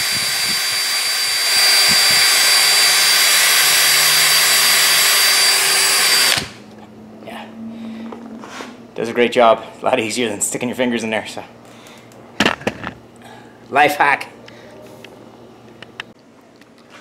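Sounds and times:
cordless drill whining: 0.0s - 6.6s.

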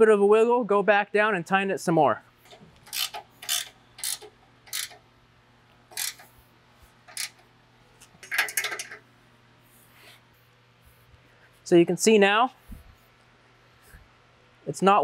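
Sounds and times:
ratchet wrench clicking: 2.5s - 5.0s, 5.9s - 6.3s, 7.1s - 7.4s, 8.2s - 9.0s.

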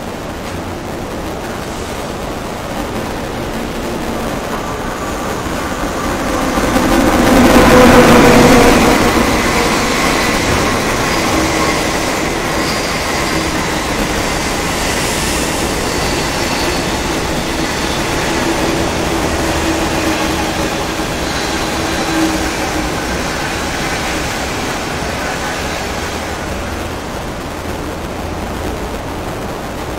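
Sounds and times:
train wheels rumbling on rails: 0.0s - 29.9s.

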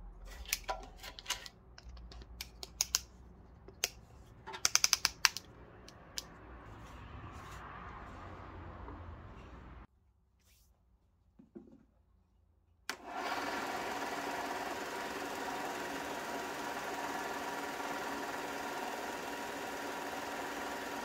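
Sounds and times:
belt sander motor running: 12.9s - 21.0s.

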